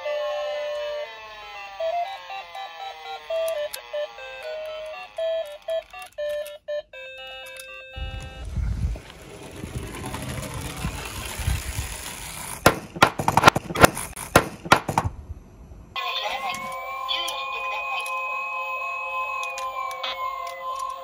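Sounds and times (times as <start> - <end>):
toy rolling on wooden slope: 8.0 - 15.1.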